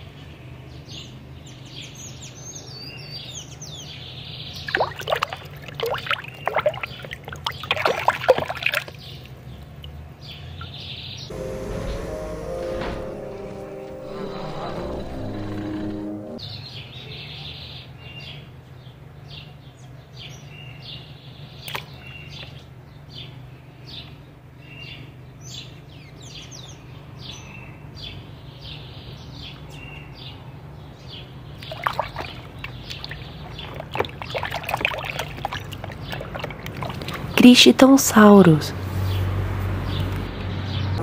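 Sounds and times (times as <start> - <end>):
water splashing in tub: 4.7 - 9.2, 31.6 - 37.4
low hum: 11.3 - 16.4
small birds chirping: 24.8 - 37.8.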